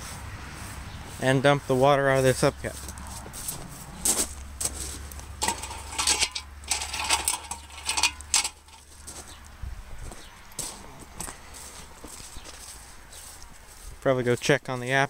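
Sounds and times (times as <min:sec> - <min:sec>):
metal hubcap clinking on gravel: 0:04.6 - 0:09.2.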